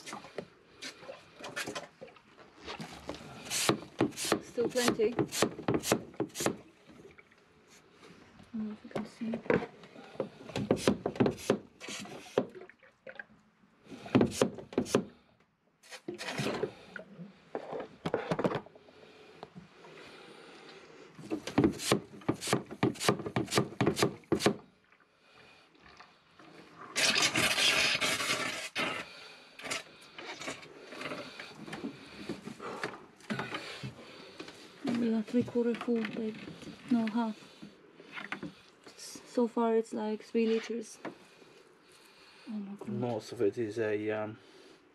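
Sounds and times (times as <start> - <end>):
hose sucking hiss: 3.4 - 4.3.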